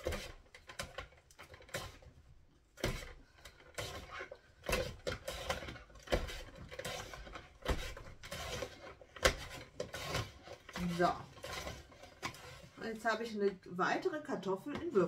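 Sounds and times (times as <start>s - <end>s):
scraping rasp of slicer: 2.8s - 12.7s.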